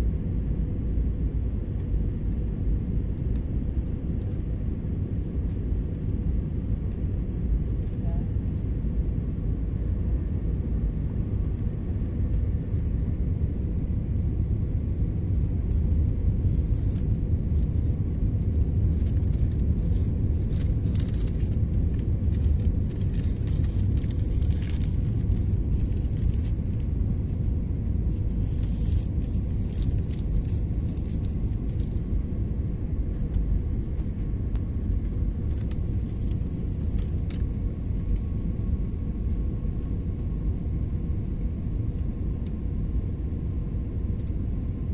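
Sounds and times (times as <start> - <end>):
airliner cabin rumble: 0.0 - 44.9
faint steady hum: 0.0 - 44.9
light crackles: 3.1 - 4.6, 15.4 - 38.5.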